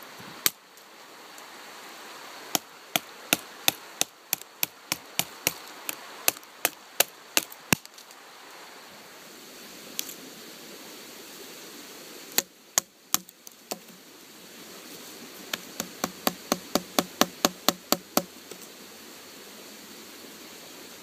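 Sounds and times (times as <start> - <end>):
knife chopping wooden stick: 15.5 - 18.3.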